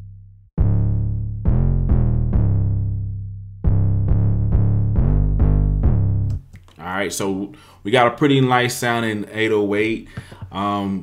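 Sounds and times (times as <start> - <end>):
distorted bass notes: 0.0 - 6.4.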